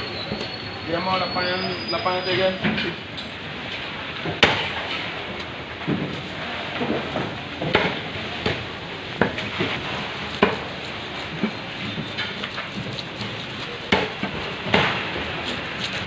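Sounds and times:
fish scaler scraping scales: 9.8 - 16.0.

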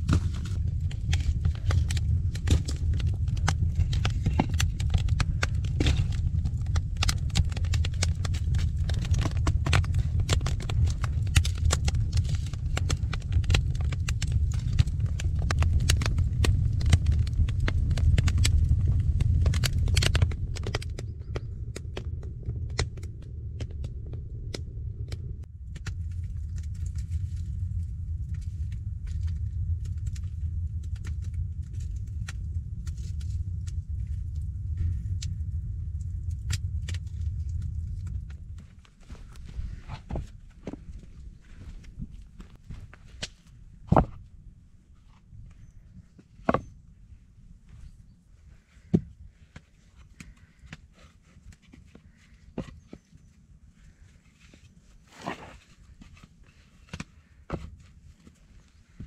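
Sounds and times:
wood fire crackling and popping: 0.0 - 44.2
low fire rumble: 0.0 - 59.0.

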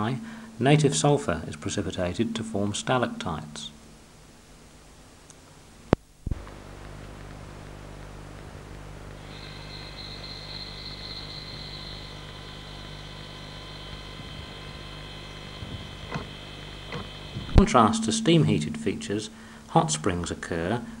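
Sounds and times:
low hum with hiss: 0.0 - 21.0
thin high whine: 5.9 - 21.0
sharp clicks: 15.6 - 17.6.

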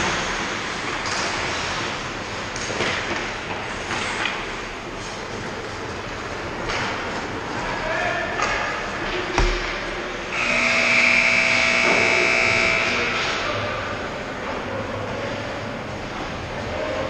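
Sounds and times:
arena horn tone: 10.3 - 13.3.

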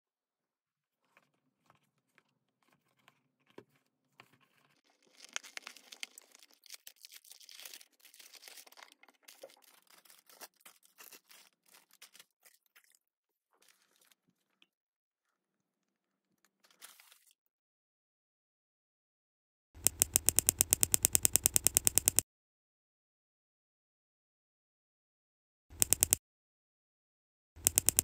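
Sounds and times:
plastic bags crinkling: 4.8 - 12.4.

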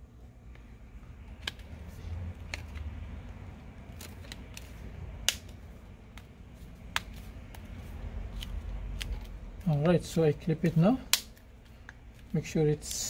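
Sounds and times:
plastic clips snapping: 3.8 - 6.3, 8.3 - 9.9, 11.0 - 12.0.

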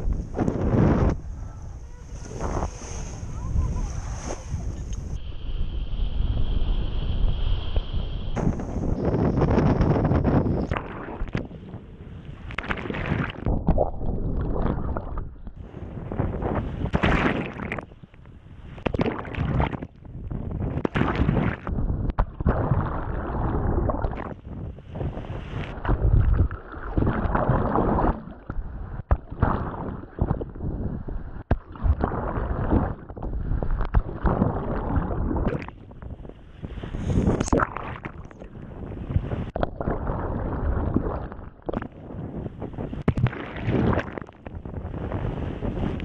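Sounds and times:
seawater rushing and splashing: 0.0 - 13.5, 34.0 - 46.0
wind buffeting microphone: 0.0 - 29.4, 30.0 - 46.0.

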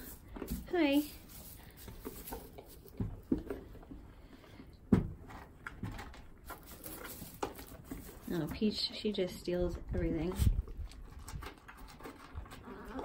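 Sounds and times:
hooves rustling in straw: 0.0 - 3.6, 6.4 - 10.6.

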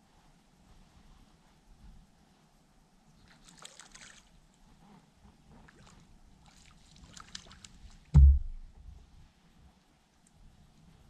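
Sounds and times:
heavy thump of fish in boat: 8.2 - 8.7.

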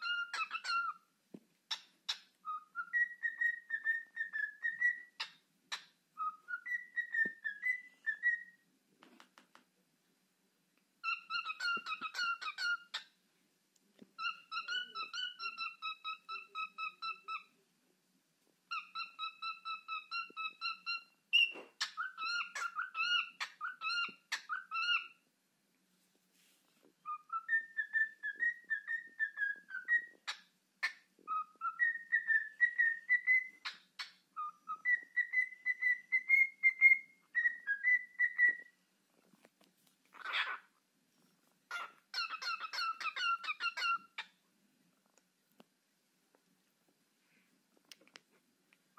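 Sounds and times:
cockatiel whistling song: 0.0 - 1.0, 1.7 - 8.6, 11.0 - 13.1, 14.2 - 17.5, 18.7 - 25.2, 27.0 - 38.8, 41.7 - 44.3.

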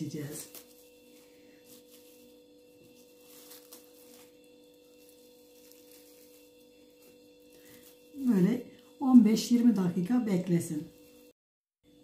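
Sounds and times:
faint electrical hum: 0.0 - 11.3
cling film crinkling: 0.1 - 8.4.

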